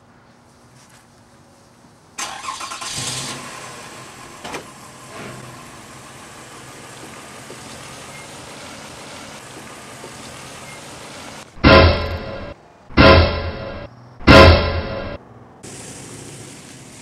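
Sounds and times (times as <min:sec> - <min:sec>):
engine starting and idling: 0:02.2 - 0:11.2
sharp knock: 0:11.6 - 0:15.2.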